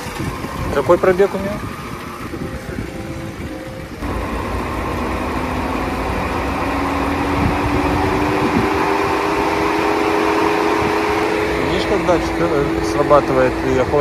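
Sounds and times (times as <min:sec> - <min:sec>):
car engine idling: 0:03.8 - 0:14.0
radiator cooling fan whirring: 0:03.8 - 0:14.0.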